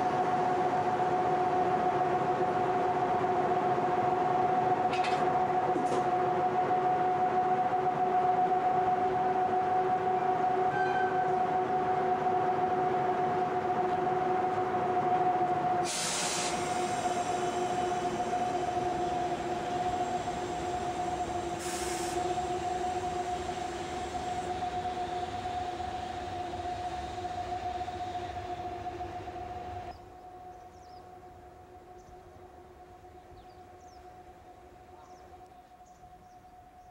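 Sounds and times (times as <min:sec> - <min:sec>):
air hisses: 0:15.8 - 0:17.9, 0:21.6 - 0:22.4.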